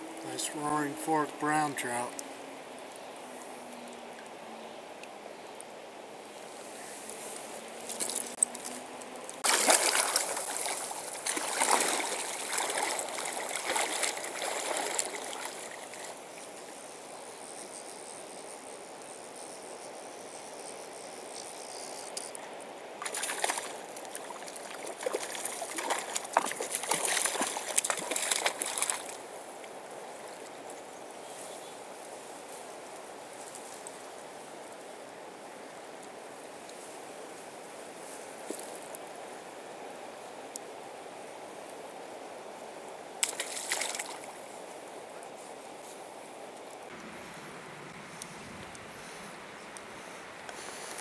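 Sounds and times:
shallow river flowing: 0.0 - 51.0
water splashing: 7.8 - 16.6, 23.0 - 29.4, 43.2 - 44.4.

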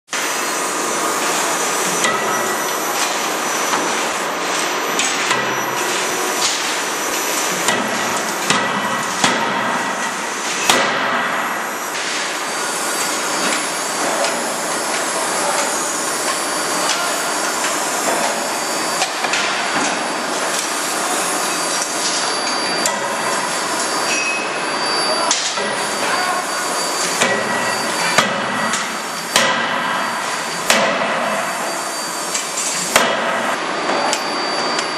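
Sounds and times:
loud shop machinery noise: 0.1 - 34.9
forging hammer striking steel: 1.9 - 2.7, 7.6 - 9.8, 10.6 - 11.5, 27.1 - 31.4, 32.9 - 33.5.

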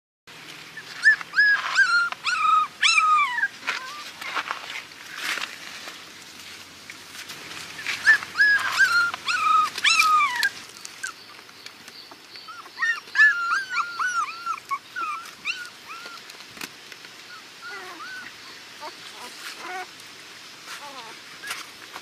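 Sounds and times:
puppy whimpering and yelping: 0.8 - 4.4, 7.8 - 11.2, 12.4 - 16.3, 17.3 - 19.9.

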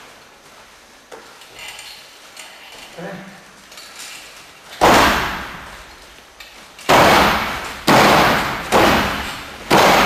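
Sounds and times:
heavy thuds on ring floor: 4.8 - 5.9, 6.9 - 10.0.

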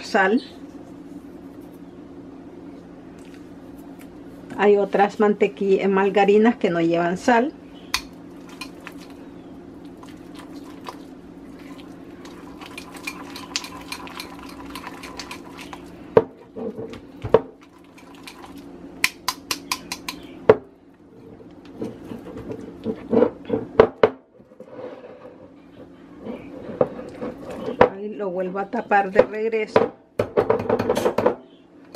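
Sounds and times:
steady low hum: 0.0 - 30.4
whisk clicking against glass bowl: 19.0 - 20.2.

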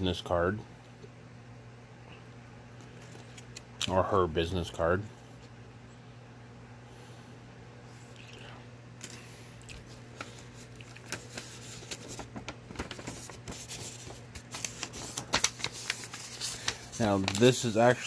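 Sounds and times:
steady low hum: 0.0 - 18.0
paper rustling and crackling: 9.8 - 18.0.

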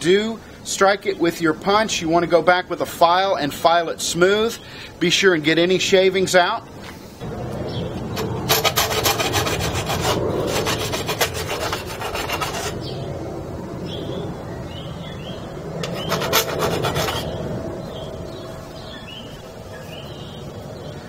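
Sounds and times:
hand file rasping on metal: 8.2 - 12.8, 15.8 - 17.4.

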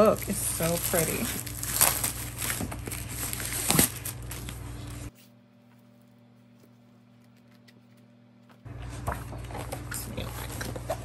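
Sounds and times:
book and packaging handling: 0.0 - 7.3.

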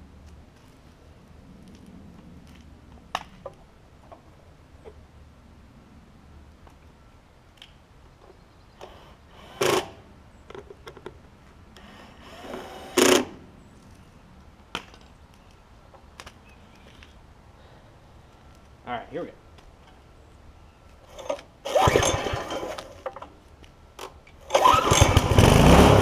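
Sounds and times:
recoil starter pull whirr: 21.1 - 23.0, 24.4 - 26.0.

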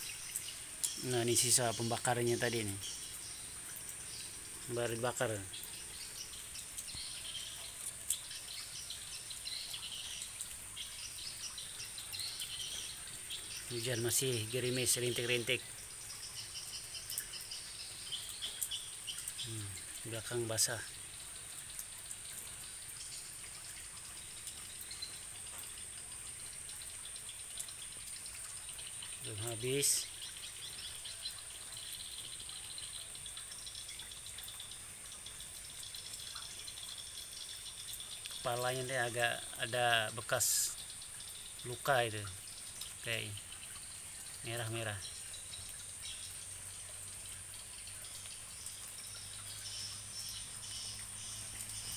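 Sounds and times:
faint background hiss: 0.0 - 51.9
high insect trill: 0.0 - 51.9
bird chirps: 48.0 - 51.9.

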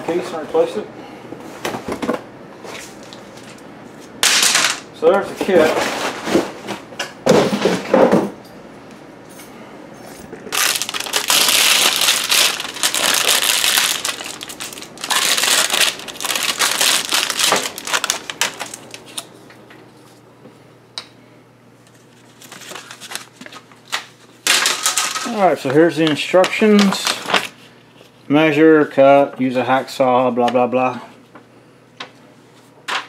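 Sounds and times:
plastic wrap crinkling: 10.5 - 19.3, 22.1 - 25.6, 26.3 - 27.6.

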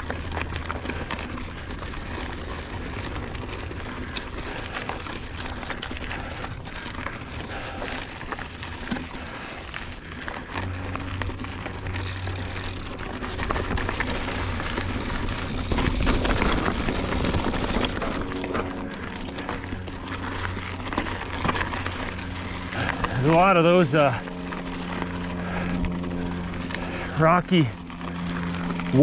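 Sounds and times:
stones crunching and clicking: 0.0 - 23.2
bike tyres on gravel: 0.0 - 29.0
low steady hum: 0.0 - 29.0.

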